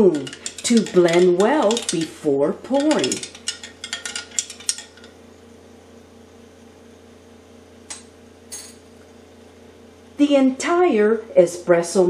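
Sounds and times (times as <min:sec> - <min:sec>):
spoon clinking against pot: 0:00.0 - 0:02.1, 0:02.7 - 0:05.1
faint steady hum: 0:00.0 - 0:12.0.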